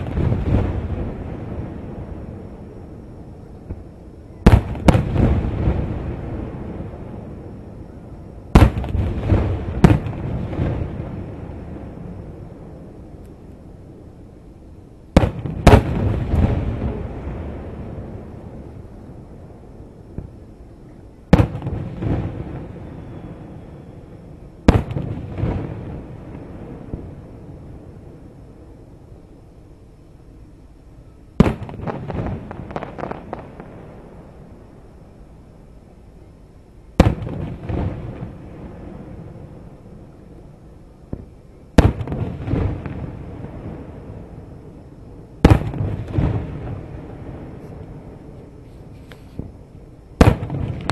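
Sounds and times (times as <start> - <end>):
firework bangs: 0.0 - 2.4, 3.6 - 7.4, 8.5 - 12.2, 15.1 - 18.4, 21.3 - 23.6, 24.6 - 27.4, 31.4 - 34.4, 37.0 - 39.4, 41.1 - 44.4, 45.4 - 47.8, 50.2 - 50.9
weaker firework boom: 37.0 - 39.4, 41.1 - 44.4, 45.4 - 47.9.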